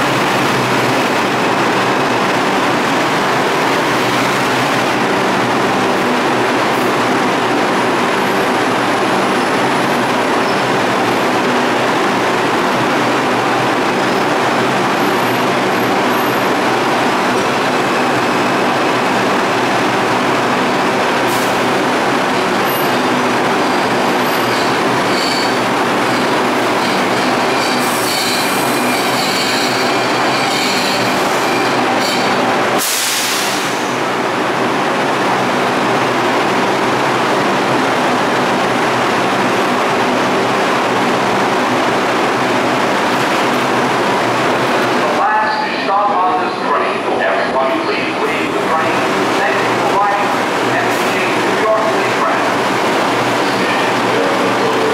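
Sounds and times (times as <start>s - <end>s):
train wheels rumbling on rail: 0.0s - 54.9s
wheel and brake squeals: 23.6s - 32.4s.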